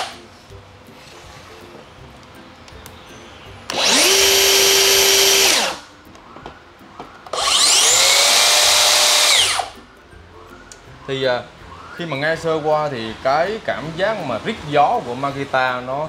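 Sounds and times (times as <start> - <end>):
track saw whining: 3.7 - 5.9, 7.3 - 9.8.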